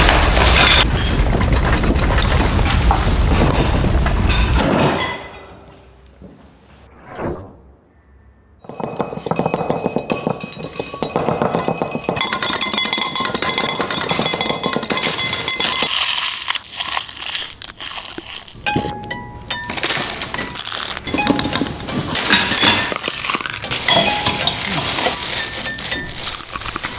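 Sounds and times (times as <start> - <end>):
short whoosh: 6.8 - 8.6
cutlery plates and glasses clinking: 8.7 - 16.2, 18.7 - 26.5
plastic wrappers crinkling: 15.0 - 18.9, 19.6 - 26.9.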